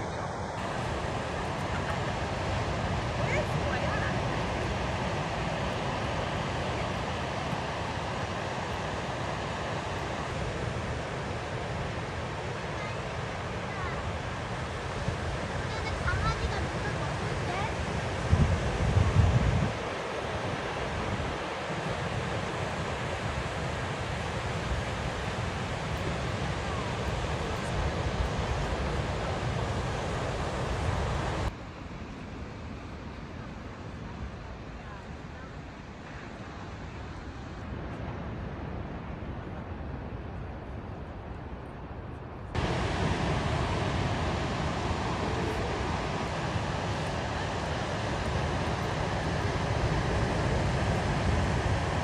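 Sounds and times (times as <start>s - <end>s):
wind buffeting microphone: 0.0s - 31.5s, 37.6s - 52.0s
ocean surf breaking: 0.0s - 32.0s, 42.5s - 52.0s.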